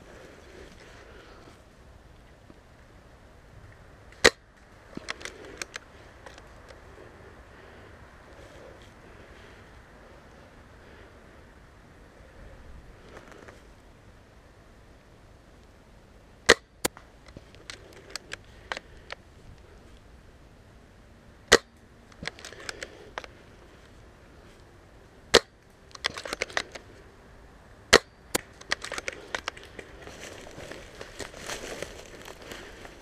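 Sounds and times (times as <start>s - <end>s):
rustling in dry grass: 0.0s - 13.9s, 28.2s - 33.0s.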